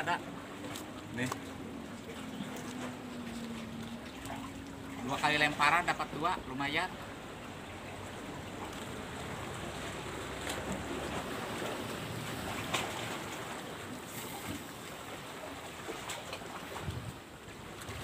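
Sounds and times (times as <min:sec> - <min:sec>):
small sea waves on rocky shore: 0:00.0 - 0:18.0
wind: 0:00.0 - 0:18.0.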